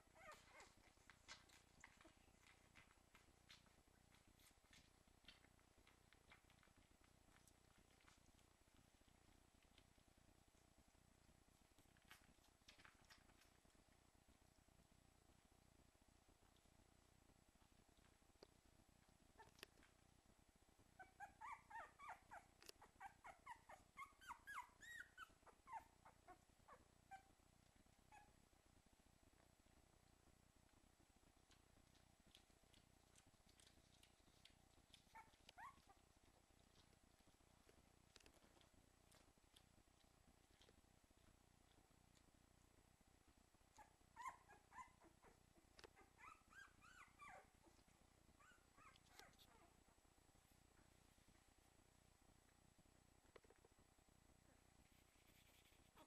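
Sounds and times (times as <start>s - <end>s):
puppy whimpering squeaky cries: 0.1s - 0.8s, 21.0s - 27.3s, 35.1s - 36.0s, 46.0s - 47.5s.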